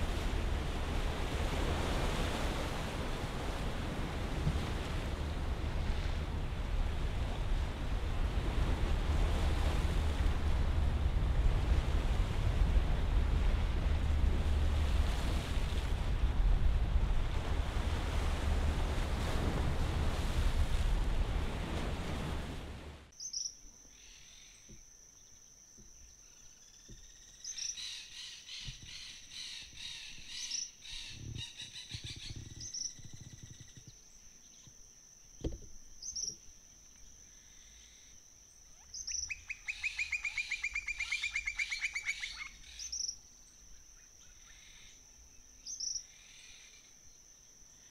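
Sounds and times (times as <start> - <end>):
wind and waves at sea: 0.0 - 25.0, 25.7 - 47.9
high insect drone: 1.5 - 12.1, 23.1 - 27.6, 30.9 - 47.9.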